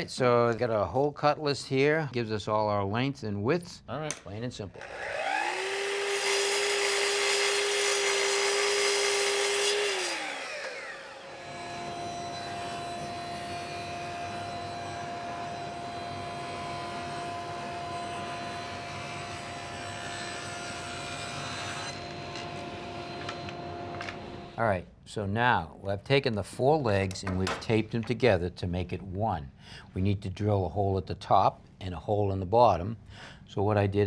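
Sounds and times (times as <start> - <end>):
miter saw cutting wood: 4.7 - 24.6
table saw humming: 4.7 - 24.6.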